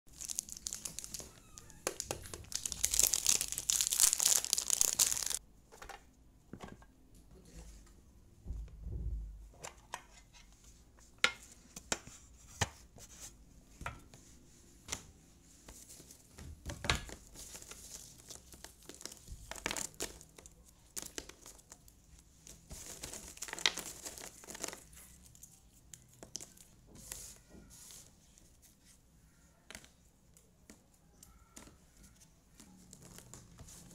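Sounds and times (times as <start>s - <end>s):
plastic wrapping crinkling and tearing: 0.1s - 5.4s, 17.1s - 26.8s.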